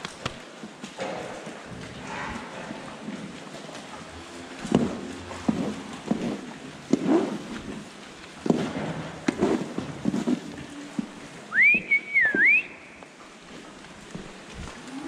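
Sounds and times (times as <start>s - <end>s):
person whistling: 11.5s - 13.0s.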